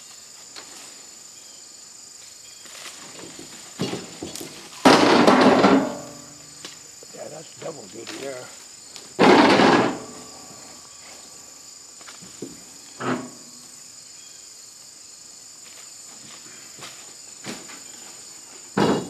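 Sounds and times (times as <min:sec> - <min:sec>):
insects buzzing: 0:00.0 - 0:19.0
tree branches rustling: 0:02.2 - 0:04.9.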